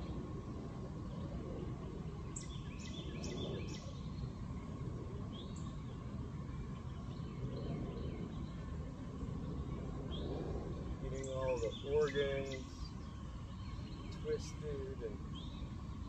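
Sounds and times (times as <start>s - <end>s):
steady low rumble: 0.0s - 16.0s
bird chirping: 2.1s - 4.7s, 5.3s - 16.0s.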